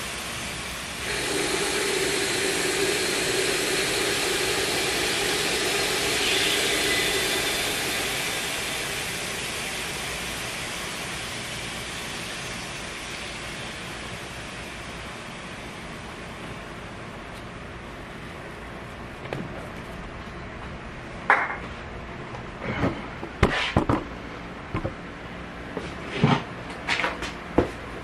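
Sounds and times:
spray foam can hissing: 0.0s - 14.6s.

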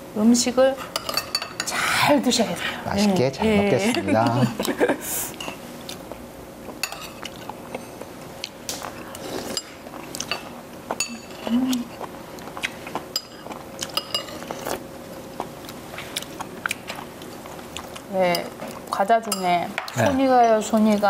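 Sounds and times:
utensils clinking against bowls: 0.9s - 1.8s, 6.8s - 7.9s, 9.0s - 12.0s, 13.1s - 14.6s, 18.2s - 21.0s.

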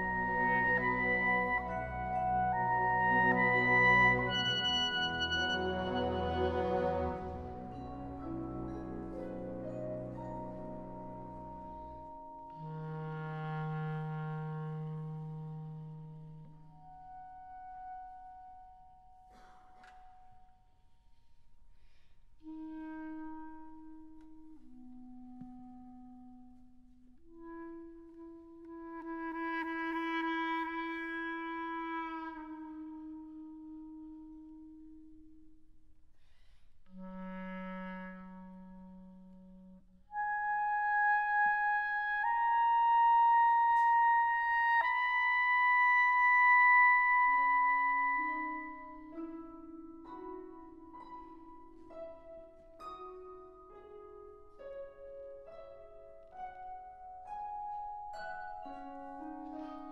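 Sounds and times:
clarinet playing held notes: 0.0s - 20.0s, 22.4s - 35.6s, 36.9s - 59.9s
orchestra: 0.0s - 59.9s.

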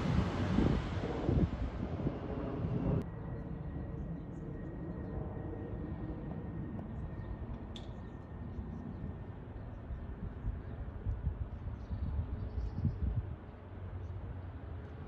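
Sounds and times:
traffic noise: 0.0s - 3.1s
distant bus rumble: 0.0s - 4.6s.

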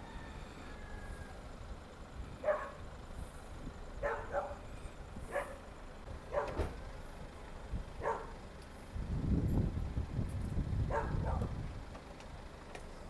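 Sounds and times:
low steady rumble: 0.0s - 13.0s
dog barking: 2.4s - 2.8s, 4.0s - 4.6s, 5.3s - 5.6s, 6.3s - 6.7s, 8.0s - 8.4s, 10.9s - 11.5s.

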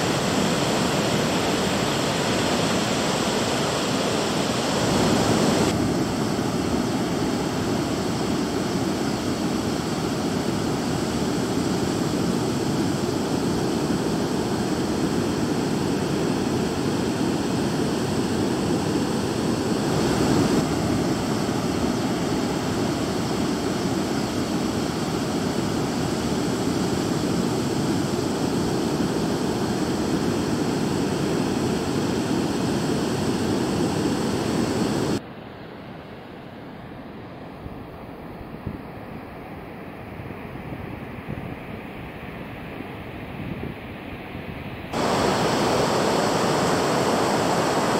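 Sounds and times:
ocean surf breaking: 0.0s - 35.2s, 44.9s - 47.9s.

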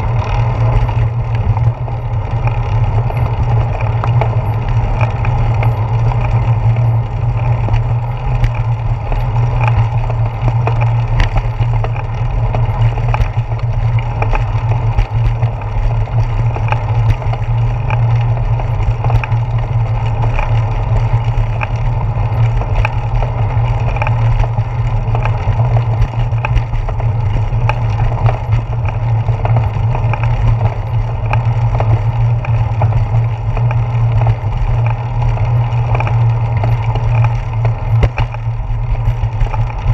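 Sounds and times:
bicycle rolling over pavement: 0.0s - 39.9s
ticks and knocks from bumps: 3.0s - 39.9s.

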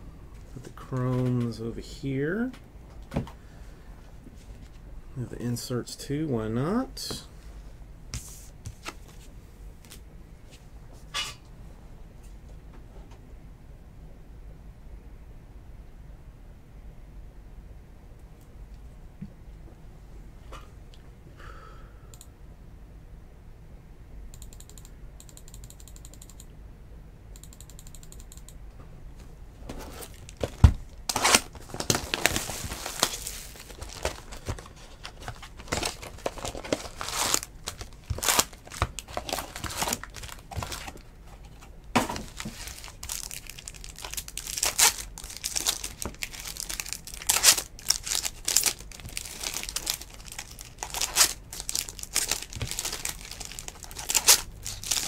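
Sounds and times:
faint rapid clicking: 24.3s - 26.5s
foil wrappers crinkling and tearing: 30.0s - 55.0s.

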